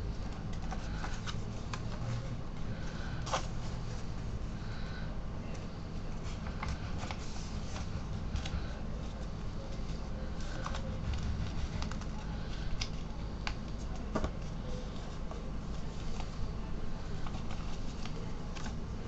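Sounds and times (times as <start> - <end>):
low hum: 0.0 - 15.8
paper being folded and creased: 17.0 - 18.8.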